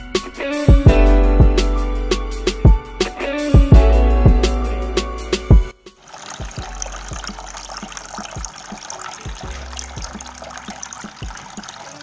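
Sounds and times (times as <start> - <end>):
small water drips: 6.0 - 12.0
water trickling into basin: 6.0 - 12.0.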